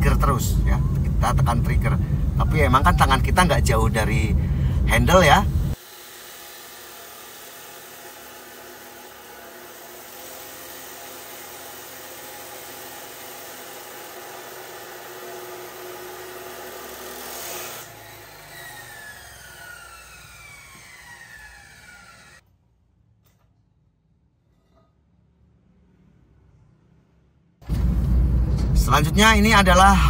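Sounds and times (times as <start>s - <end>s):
cut-off saw grinding steel pipe: 5.8s - 22.4s.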